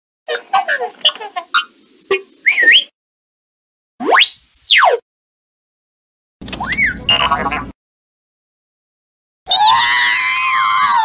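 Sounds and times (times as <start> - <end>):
robot beeps and whistles: 2.4 - 2.9.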